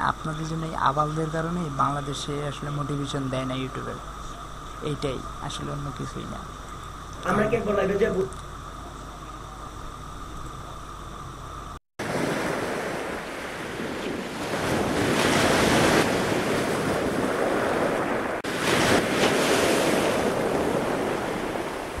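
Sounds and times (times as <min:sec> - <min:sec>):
wind: 0:00.0 - 0:22.0
rushing surf: 0:12.0 - 0:22.0
wind buffeting microphone: 0:12.1 - 0:22.0.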